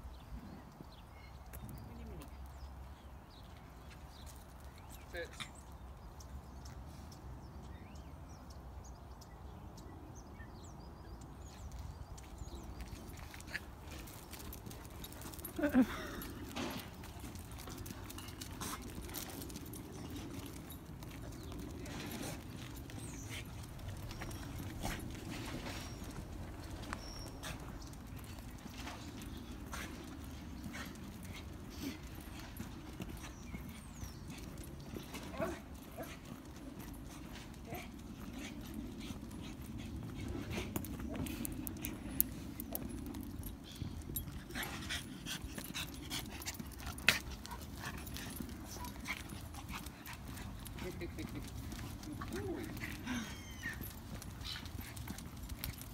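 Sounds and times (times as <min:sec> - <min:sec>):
footsteps on tarmac: 0:11.2 - 0:55.9
dog panting: 0:17.0 - 0:55.9.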